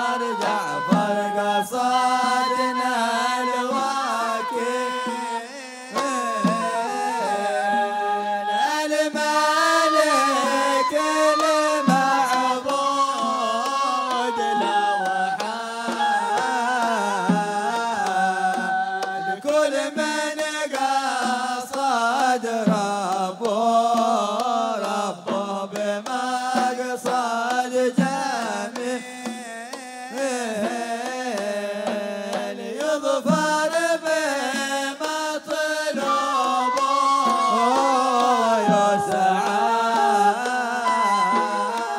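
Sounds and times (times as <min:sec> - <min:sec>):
hand drums: 0:00.0 - 0:41.9
ornamented melody: 0:36.0 - 0:41.9.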